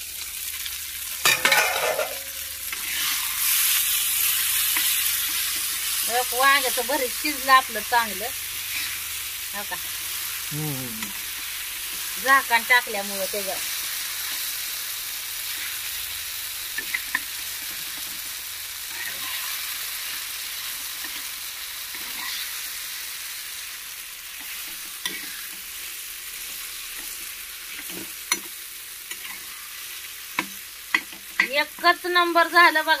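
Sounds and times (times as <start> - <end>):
food sizzling in frying pan: 0.0 - 33.0
spatula scraping pan: 1.2 - 3.9, 22.0 - 22.6.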